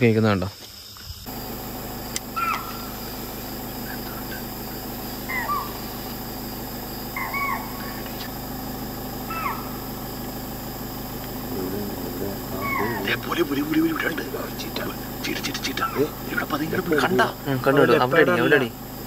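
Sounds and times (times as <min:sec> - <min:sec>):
night insects chorus: 0:00.0 - 0:19.0
deer alarm calls: 0:02.2 - 0:06.3, 0:07.1 - 0:08.4, 0:09.2 - 0:10.0, 0:12.1 - 0:18.7.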